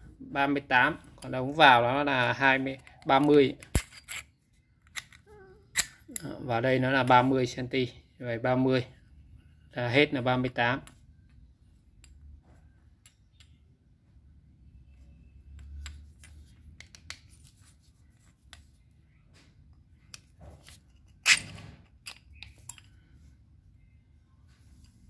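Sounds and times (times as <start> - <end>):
metal tools clinking: 2.7 - 6.3, 20.6 - 23.0.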